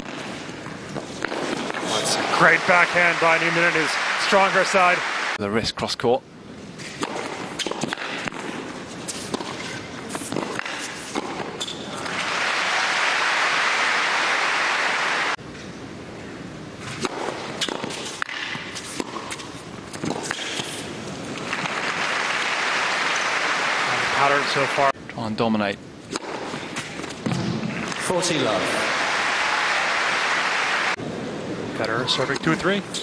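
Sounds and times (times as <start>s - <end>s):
rackets striking tennis ball: 0.0s - 1.9s, 6.8s - 12.3s, 16.8s - 22.1s, 26.1s - 28.1s
crowd applauding: 1.9s - 5.4s, 12.0s - 15.4s, 21.5s - 24.9s, 28.4s - 31.0s.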